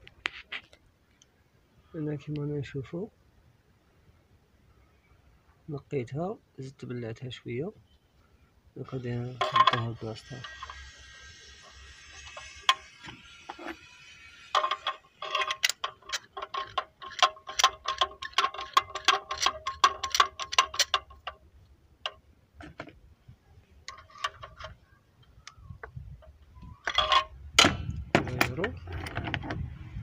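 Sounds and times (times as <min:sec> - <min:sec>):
ratchet wrench clicking: 0:09.3 - 0:21.4.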